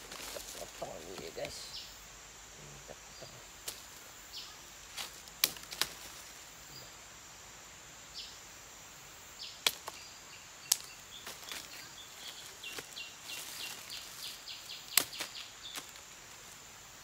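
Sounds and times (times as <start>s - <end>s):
machete cracking woody stem: 5.0s - 6.1s, 9.6s - 10.0s, 14.9s - 16.0s.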